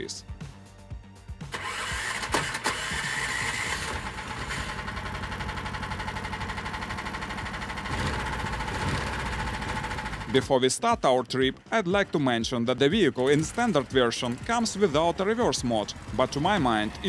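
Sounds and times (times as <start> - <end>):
small engine idling: 1.5 - 10.5, 11.9 - 17.0.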